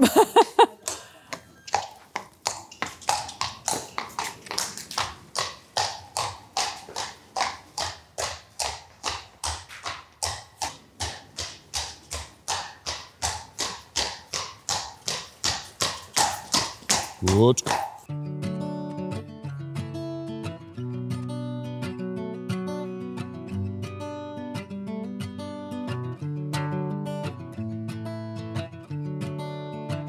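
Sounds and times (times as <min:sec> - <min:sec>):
jogging footsteps: 0:00.0 - 0:18.1
horse hooves trotting on paving: 0:00.2 - 0:18.1.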